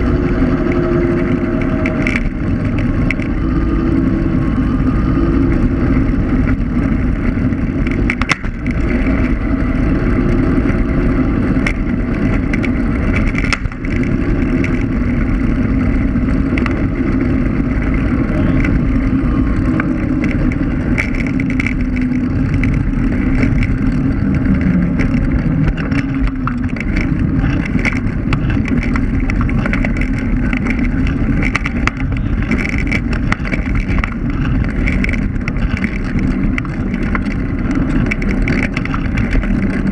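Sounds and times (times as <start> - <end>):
electric scooter motor hum: 0.0 - 39.9
tyre rumble: 0.0 - 39.9
wind on microphone: 0.0 - 39.9
knocks from pavement bumps: 5.7 - 9.6, 19.6 - 39.9.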